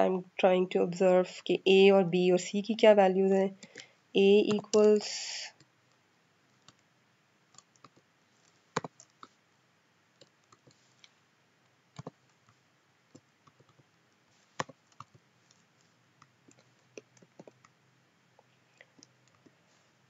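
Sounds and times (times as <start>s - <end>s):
keyboard typing clicks: 4.4s - 5.0s, 7.5s - 8.0s, 8.8s - 9.3s, 12.0s - 12.4s, 14.6s - 15.2s.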